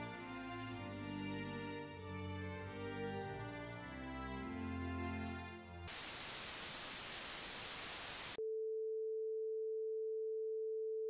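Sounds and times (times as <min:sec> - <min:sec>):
television static hiss: 0:05.9 - 0:08.4.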